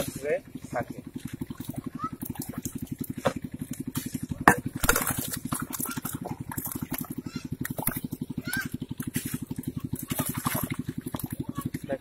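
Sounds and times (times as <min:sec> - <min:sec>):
small engine puttering: 0:00.0 - 0:12.0
metal bowl knocking and scraping: 0:04.3 - 0:05.2.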